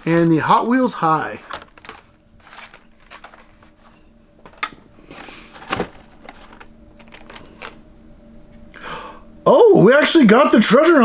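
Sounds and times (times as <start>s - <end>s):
plastic and card rustling: 0.0s - 7.8s.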